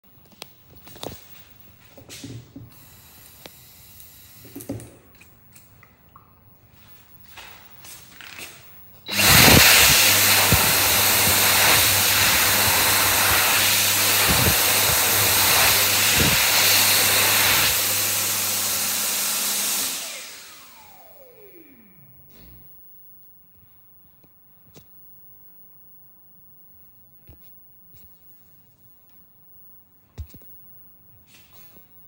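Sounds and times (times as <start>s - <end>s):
hand dryer blowing air: 9.1s - 22.0s
motor whine spinning down: 9.1s - 22.6s.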